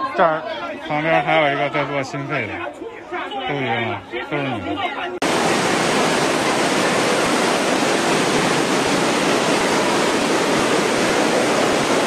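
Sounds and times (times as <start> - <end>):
floodwater rushing: 5.2 - 12.0.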